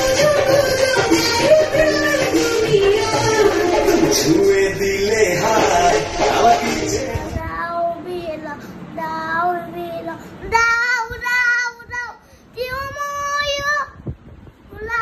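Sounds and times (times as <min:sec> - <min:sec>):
young child singing: 0:00.0 - 0:04.1, 0:07.1 - 0:15.0.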